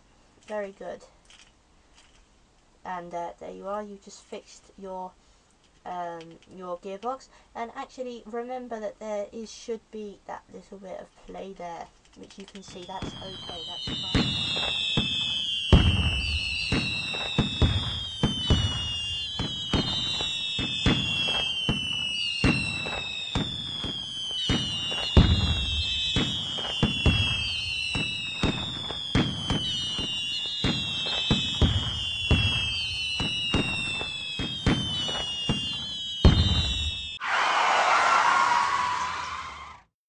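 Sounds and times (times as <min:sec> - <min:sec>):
firework whistles falling in pitch: 0:12.6 - 0:39.9
firework cracks and bangs: 0:12.7 - 0:37.2.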